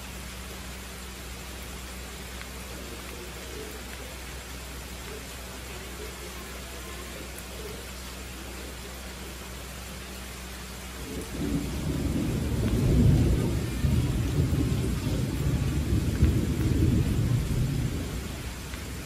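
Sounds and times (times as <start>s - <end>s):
steady rain falling: 0.0s - 19.0s
low roll of thunder: 11.0s - 19.0s.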